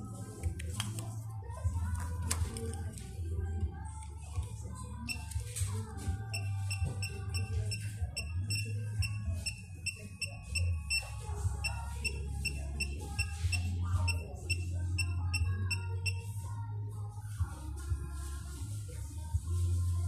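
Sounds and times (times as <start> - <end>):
background music with ticking notes: 0.0 - 16.4.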